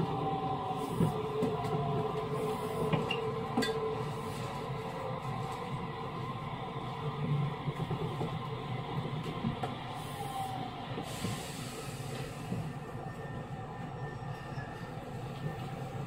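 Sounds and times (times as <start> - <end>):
train wheels rumbling on rail: 0.0 - 16.0.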